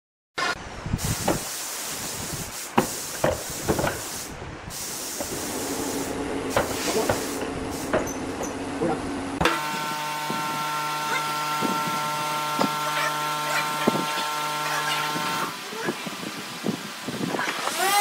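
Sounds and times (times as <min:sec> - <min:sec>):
steady hiss: 0:00.8 - 0:08.1.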